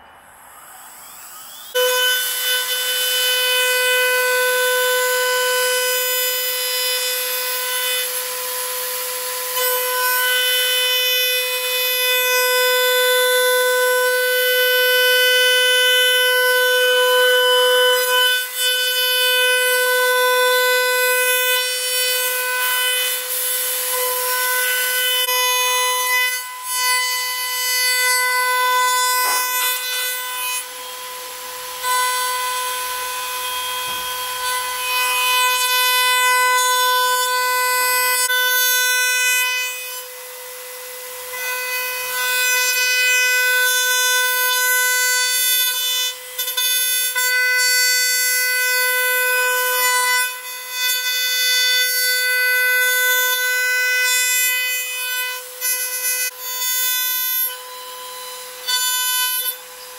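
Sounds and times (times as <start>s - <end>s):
hiss of wood cutting: 0.0s - 9.5s, 26.4s - 36.0s
router spindle whining: 0.0s - 59.9s.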